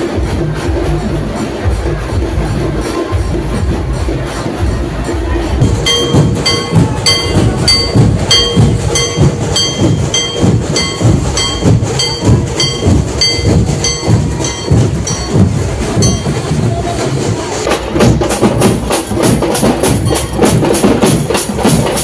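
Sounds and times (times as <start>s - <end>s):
low drum beats: 0.0s - 22.0s
ringing metal percussion strikes: 5.4s - 22.0s.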